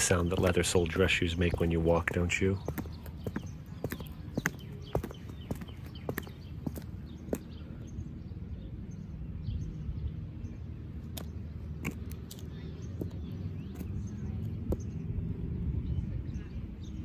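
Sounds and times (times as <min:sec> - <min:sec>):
faint birdsong: 0:00.0 - 0:17.0
low outdoor rumble: 0:00.0 - 0:17.0
heel clicks on concrete: 0:02.6 - 0:07.5.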